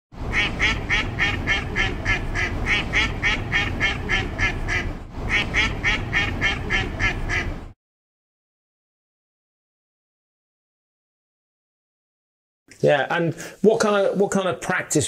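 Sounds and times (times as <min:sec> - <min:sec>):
rapid quacking calls: 0:00.3 - 0:07.6.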